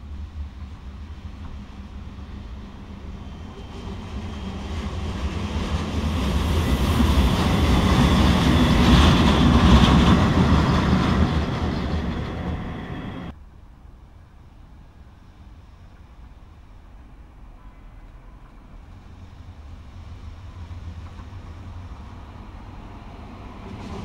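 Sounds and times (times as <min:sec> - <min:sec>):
locomotives passing rumble: 0:03.4 - 0:13.3.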